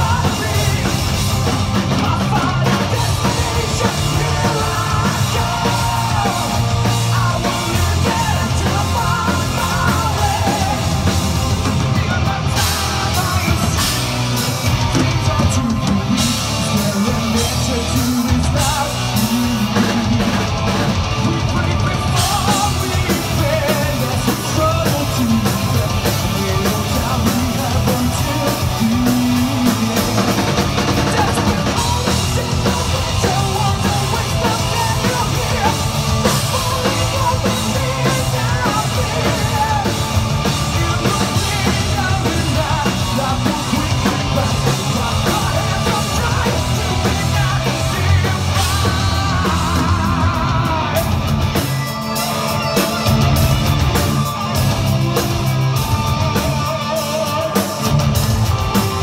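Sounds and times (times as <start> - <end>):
man singing into microphone: 0.0 - 1.3, 1.9 - 11.1, 11.9 - 14.0, 15.0 - 20.1, 21.3 - 30.4, 31.0 - 51.1
drum kit: 0.0 - 59.0
electric guitar: 0.0 - 59.0.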